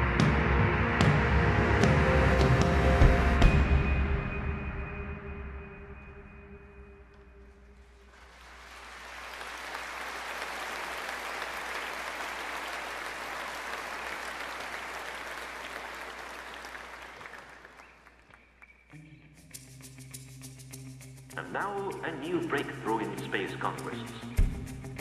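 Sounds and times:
audience applauding: 0:08.0 - 0:18.7.

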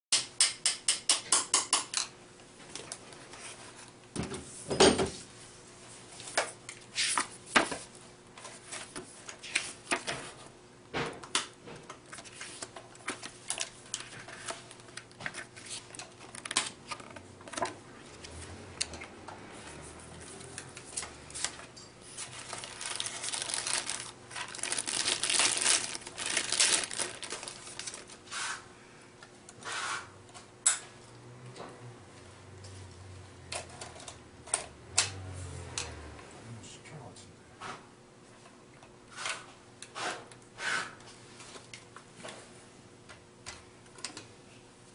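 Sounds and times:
plastic wrap crinkling: 0:22.1 - 0:28.2.

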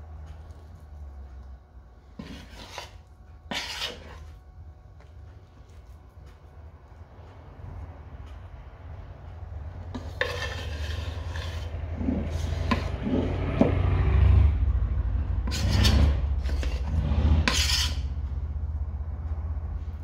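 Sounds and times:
steady low hum: 0:00.0 - 0:20.0
metal spoon scraping pot: 0:02.2 - 0:04.4, 0:09.9 - 0:13.8, 0:15.4 - 0:18.1.

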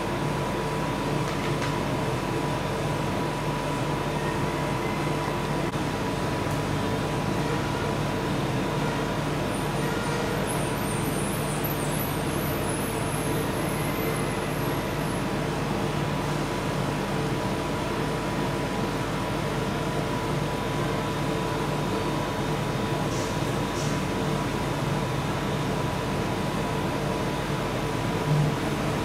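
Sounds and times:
mechanical hum: 0:00.0 - 0:29.0.

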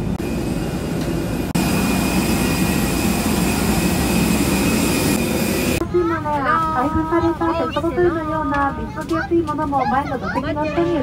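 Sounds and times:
jet aircraft rush and whine: 0:00.0 - 0:05.8.

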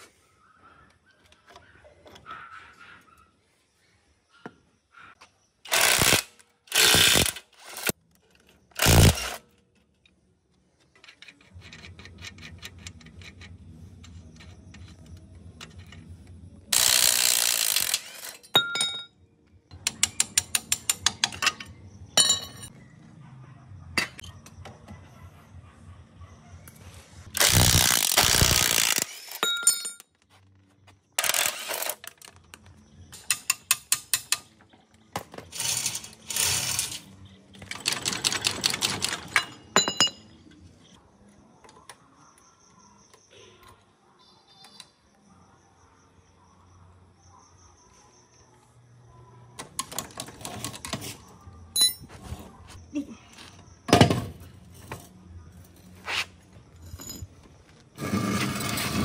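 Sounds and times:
metallic clinks and knocks: 0:18.2 - 0:19.2, 0:29.2 - 0:30.3, 0:37.5 - 0:40.6, 0:51.7 - 0:52.2, 0:54.0 - 0:57.8.

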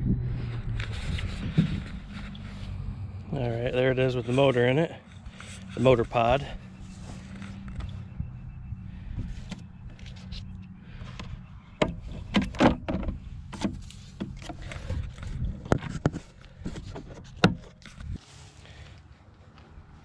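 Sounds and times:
low steady rumble: 0:00.0 - 0:20.0
hard plastic parts knocking: 0:11.1 - 0:15.1.

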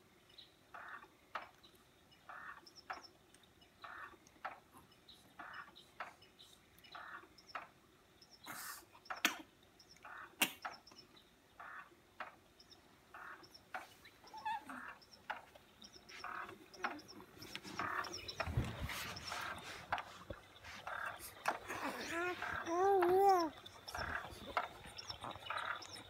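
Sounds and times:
cradle swing rocking: 0:03.9 - 0:06.4, 0:11.6 - 0:26.0
faint high chirps: 0:12.6 - 0:26.0.

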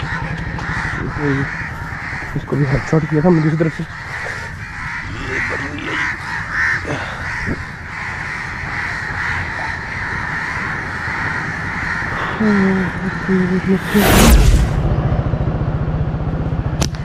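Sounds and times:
crows cawing: 0:00.0 - 0:13.9
low rumble: 0:12.0 - 0:17.0.

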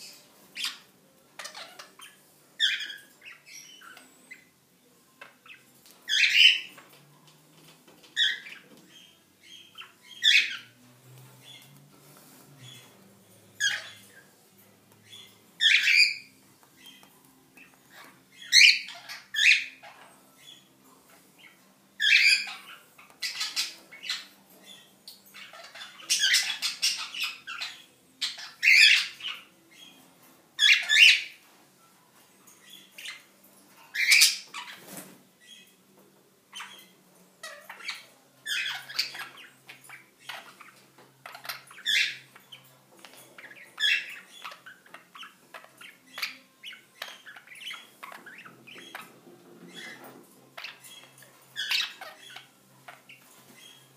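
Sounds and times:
birds chirping chatter: 0:00.0 - 0:53.9
parrots squawking: 0:00.5 - 0:04.5, 0:05.5 - 0:06.8, 0:08.1 - 0:10.8, 0:13.6 - 0:14.3, 0:15.0 - 0:29.9, 0:30.6 - 0:31.4, 0:33.9 - 0:34.8, 0:36.5 - 0:53.9.

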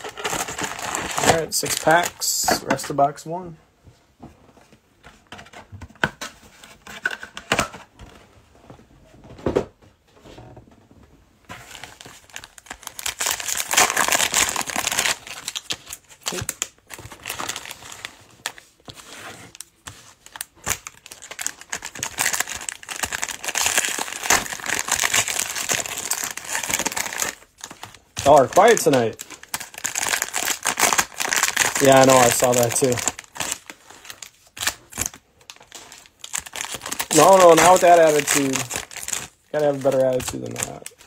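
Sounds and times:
plastic wrappers crinkling and tearing: 0:00.0 - 0:03.0, 0:11.6 - 0:41.0.

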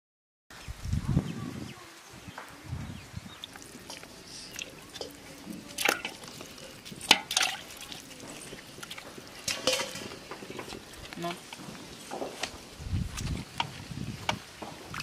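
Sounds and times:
wet squishing and splashing: 0:03.3 - 0:15.0.

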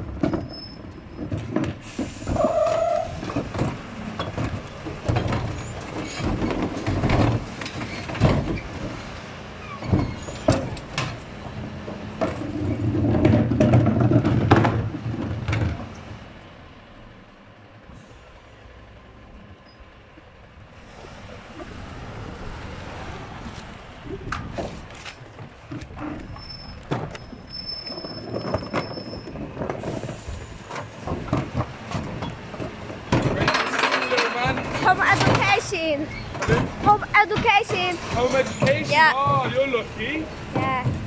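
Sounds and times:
hydraulics running loudly: 0:00.0 - 0:41.0
truck engine rumble: 0:00.0 - 0:41.0
plastic bins clattering and banging: 0:01.2 - 0:09.0, 0:09.8 - 0:16.0, 0:24.3 - 0:39.8.

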